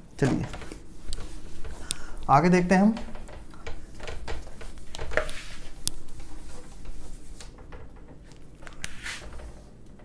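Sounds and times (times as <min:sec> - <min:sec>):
cloth rubbing on whiteboard: 0:04.5 - 0:07.5, 0:08.8 - 0:09.4.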